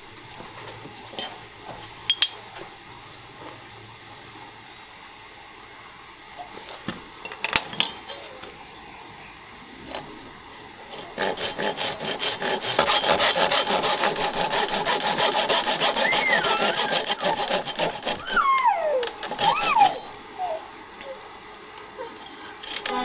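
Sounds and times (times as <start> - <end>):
hand saw cutting wood: 10.9 - 18.4, 19.2 - 20.1.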